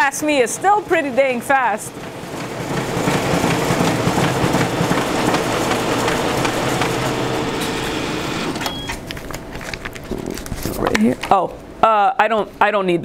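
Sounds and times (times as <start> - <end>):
printer mechanical whir: 0.0 - 9.8
paper-feed clicks: 1.0 - 10.8.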